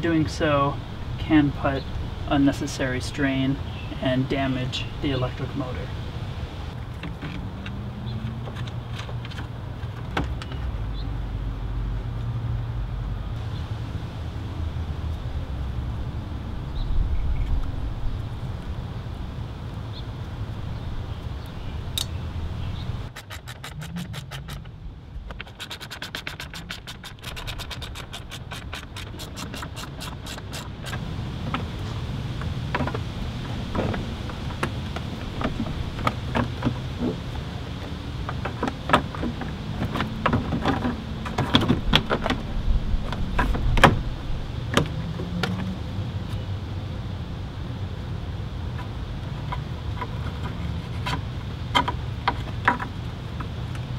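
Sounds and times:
low steady rumble: 0.0 - 25.8.

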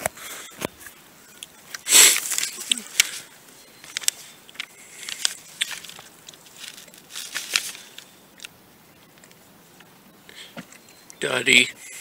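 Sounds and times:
pony crunching grain: 4.8 - 8.1.

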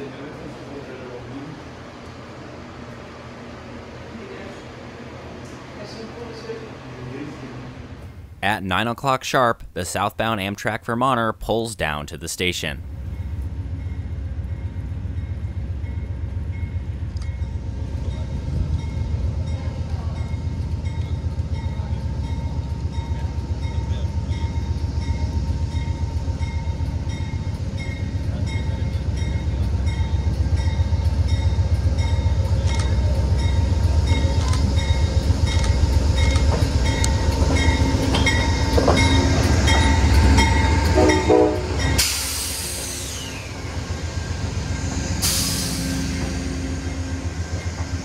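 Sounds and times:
diesel locomotive engine: 0.0 - 10.8, 11.4 - 48.0
locomotive bell ringing: 12.8 - 42.8.

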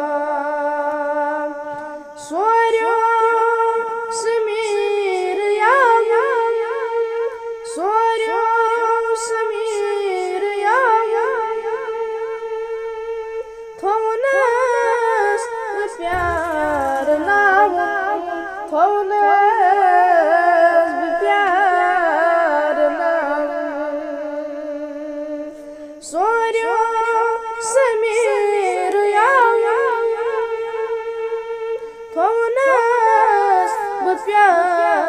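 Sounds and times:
singer breath: 31.8 - 32.1.

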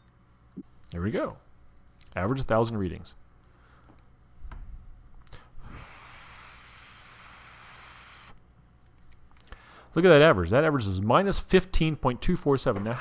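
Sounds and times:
breath blowing hiss: 5.6 - 8.4.

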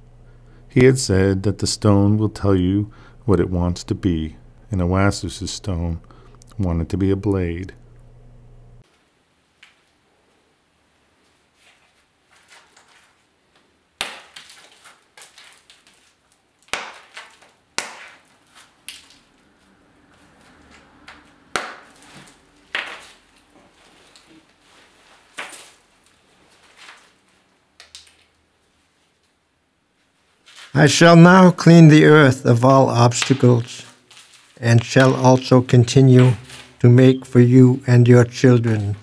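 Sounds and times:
soft scraping and rustling: 11.1 - 13.7, 22.0 - 29.4, 30.0 - 30.8, 33.8 - 34.6
sharp clacks of stone striking: 14.0 - 14.5, 16.7 - 18.2, 21.5 - 22.0.

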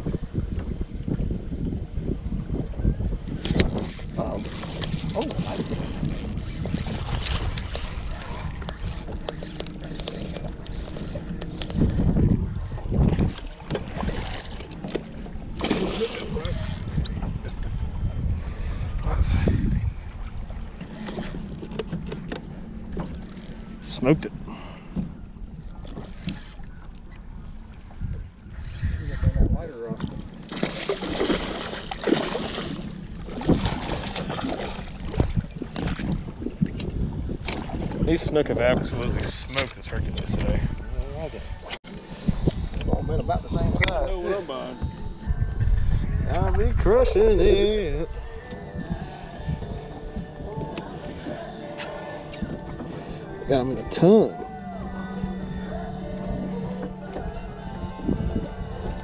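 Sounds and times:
wind buffeting microphone: 0.0 - 59.0
fish splashing at water surface: 30.5 - 35.2.

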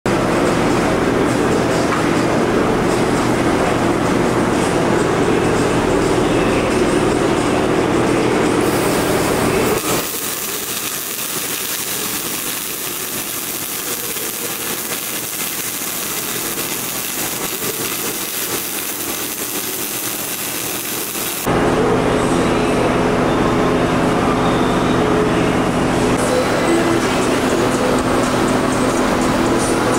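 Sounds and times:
loud machine hum: 7.0 - 24.4
welding arc hiss: 8.7 - 21.5.

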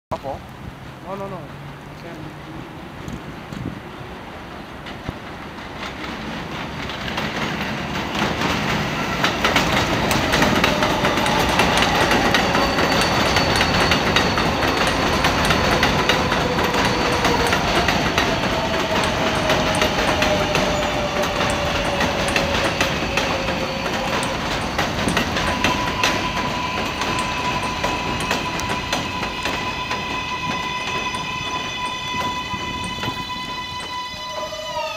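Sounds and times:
wheels clacking over rail joints: 0.4 - 34.9
electric train motor whine: 8.3 - 34.9.

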